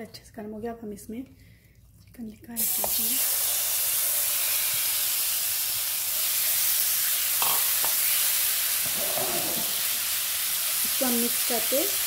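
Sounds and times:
chicken sizzling in oil: 2.6s - 12.0s.

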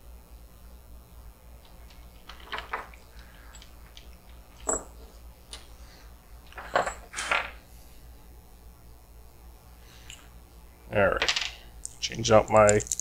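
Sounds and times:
small metal tools clinking: 11.2s - 13.0s.

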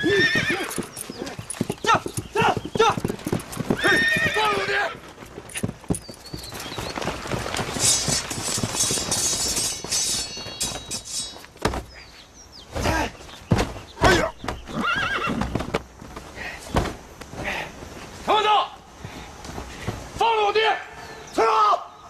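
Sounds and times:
horse whinnying: 0.0s - 5.1s, 14.0s - 15.6s
horse hooves galloping: 0.0s - 11.9s, 12.8s - 18.0s.

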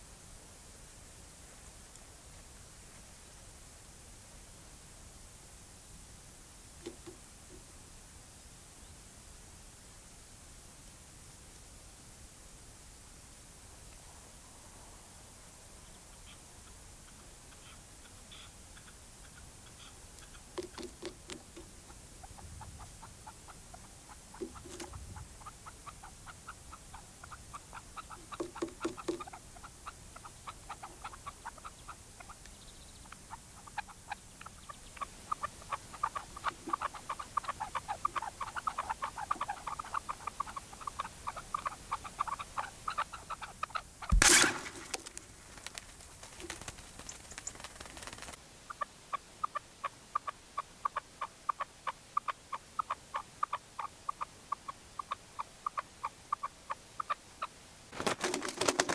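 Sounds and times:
partridges clucking: 6.8s - 7.2s, 18.3s - 22.3s, 24.3s - 25.5s, 27.3s - 29.7s, 33.7s - 48.4s
loud bang: 44.1s - 45.0s.

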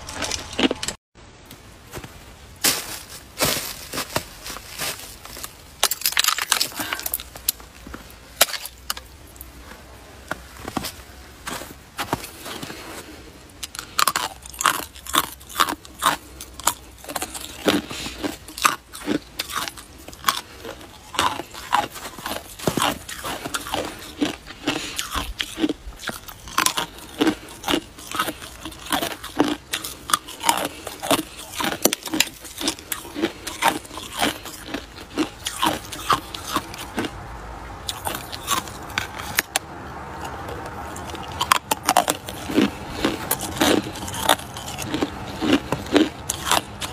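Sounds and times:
ice crunching between teeth: 4.8s - 7.6s, 8.4s - 9.0s, 13.6s - 37.2s, 37.9s - 46.9s.

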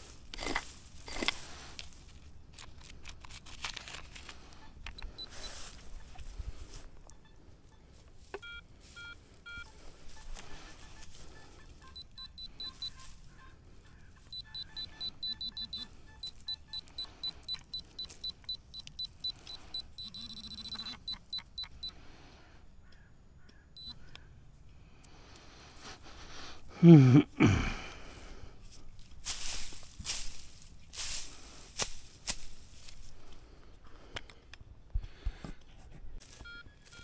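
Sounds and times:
metal detector beeping: 0.0s - 1.9s, 4.3s - 22.0s, 23.7s - 24.3s, 36.2s - 37.0s.

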